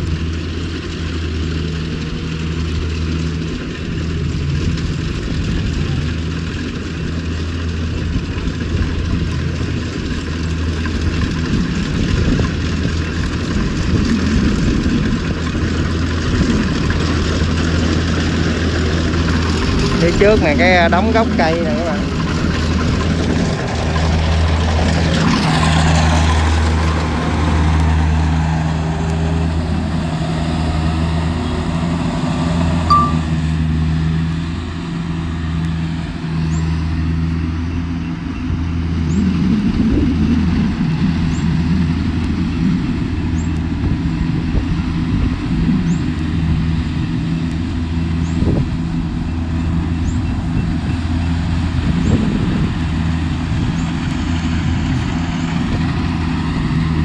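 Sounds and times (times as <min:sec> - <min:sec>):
combine harvester engine humming: 0:00.0 - 0:57.0
faint high chirp: 0:32.9 - 0:33.4.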